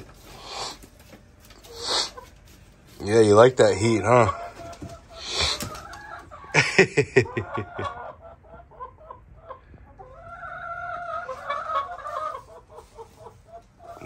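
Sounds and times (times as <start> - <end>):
chickens clucking: 0.0 - 14.0
chicken drawn-out call: 1.5 - 2.6, 3.7 - 6.6, 7.2 - 14.0.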